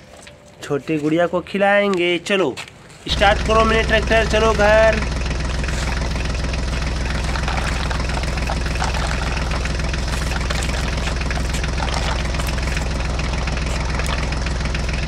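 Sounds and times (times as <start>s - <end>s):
low engine drone: 3.1s - 15.0s.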